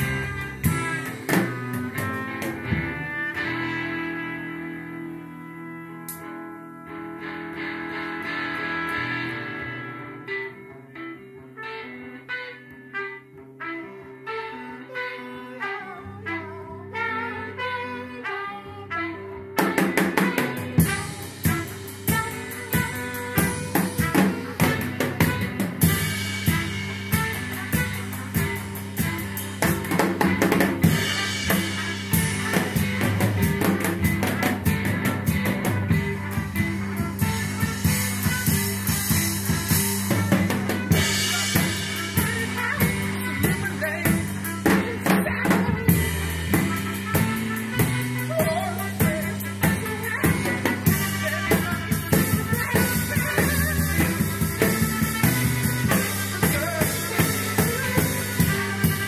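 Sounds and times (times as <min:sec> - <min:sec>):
drum kit driving beat: 0:00.0 - 0:05.2, 0:19.6 - 0:59.0
electric bass: 0:00.0 - 0:11.6, 0:19.4 - 0:59.0
guitar: 0:00.0 - 0:59.0
trumpet: 0:00.0 - 0:59.0.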